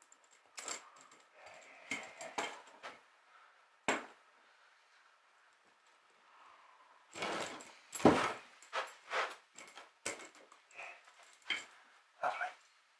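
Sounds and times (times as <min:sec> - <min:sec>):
metal parts clinking on wood: 0:00.0 - 0:02.9, 0:09.6 - 0:11.8.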